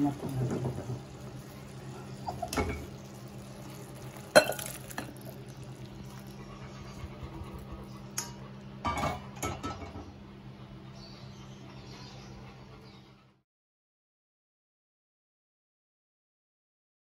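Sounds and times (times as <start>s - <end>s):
steady low hum: 0.0s - 13.4s.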